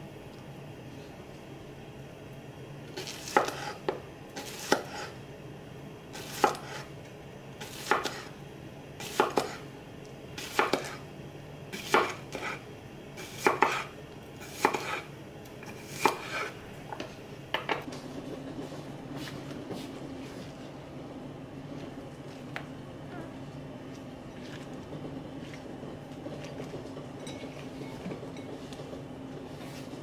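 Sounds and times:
cleaver slicing cucumber: 3.0 - 3.8, 13.2 - 15.1.

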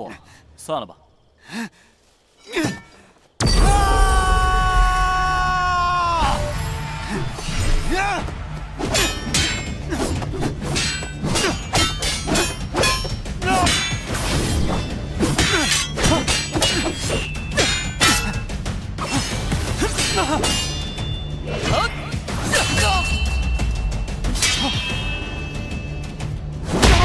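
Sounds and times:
dramatic background music: 3.4 - 27.0
voiced cries of effort: 3.5 - 8.3.

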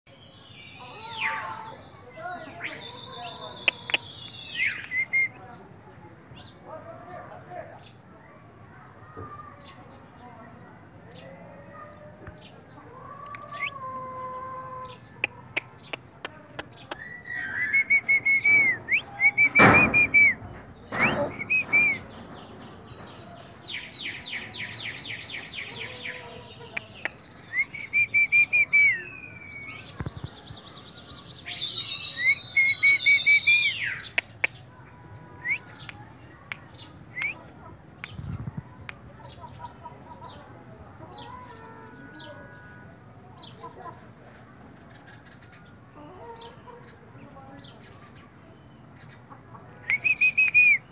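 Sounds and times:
small birds chirping: 0.1 - 50.9
loud broad sounds: 18.2 - 23.8.

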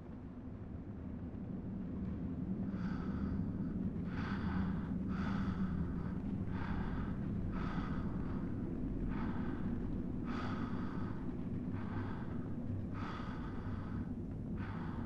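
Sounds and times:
low steady drone: 0.0 - 15.0
man breathing heavily: 2.7 - 15.0.

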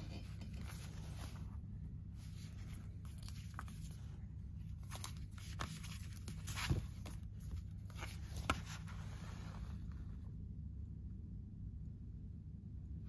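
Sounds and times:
paper rustling: 0.0 - 10.1
steady low hum: 0.0 - 13.0.

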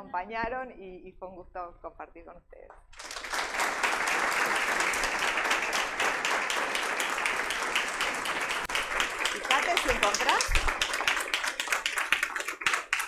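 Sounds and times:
audience applauding: 2.9 - 13.0.

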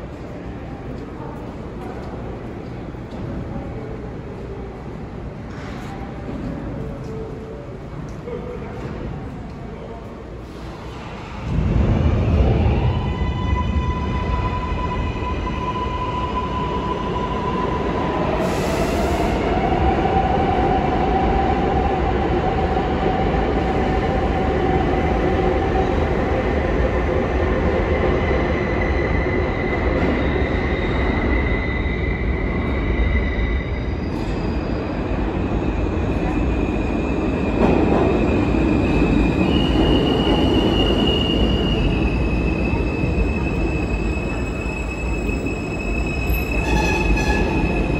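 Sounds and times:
train rumble: 0.0 - 31.4, 32.1 - 47.9
subway train wheels squealing: 10.2 - 47.9.

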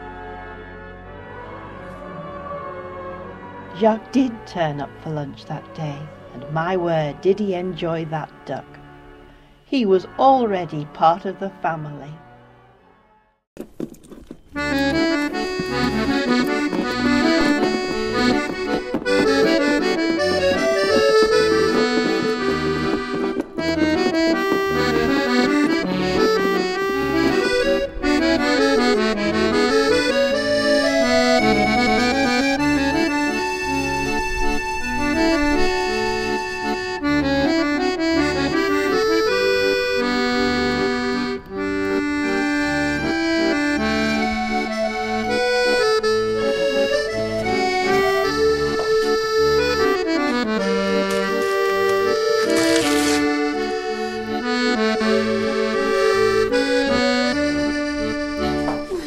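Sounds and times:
accordion melody: 0.0 - 59.0
repeating bass notes: 14.8 - 58.7.

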